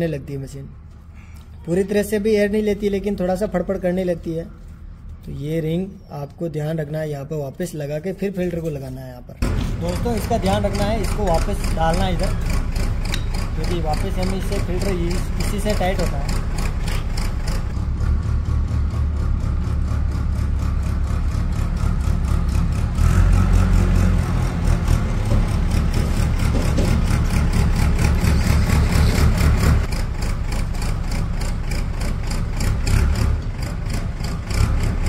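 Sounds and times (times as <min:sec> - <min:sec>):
engine idling: 0:09.4 - 0:35.0.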